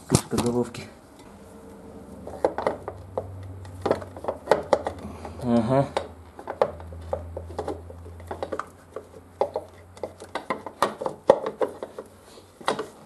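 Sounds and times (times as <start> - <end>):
low hum: 0.8 - 8.3.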